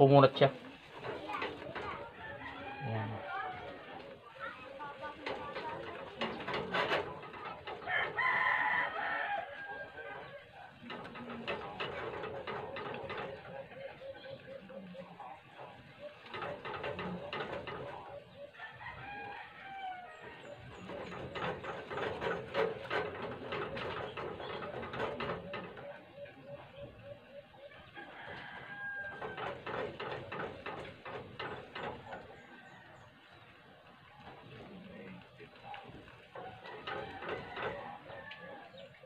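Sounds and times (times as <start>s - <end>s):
chickens clucking: 0.0s - 39.0s
rooster crowing: 2.2s - 3.9s, 7.8s - 10.4s, 18.2s - 20.6s, 27.7s - 29.6s, 36.4s - 38.8s.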